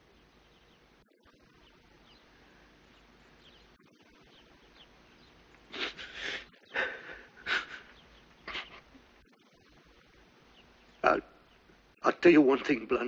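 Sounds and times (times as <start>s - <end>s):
man sobbing and sniffling: 5.7s - 9.0s.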